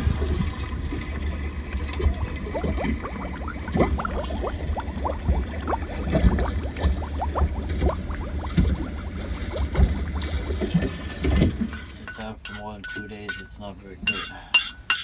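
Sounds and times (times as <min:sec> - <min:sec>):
low rumble: 0:00.0 - 0:11.8
water gurgling in a sink: 0:00.0 - 0:11.8.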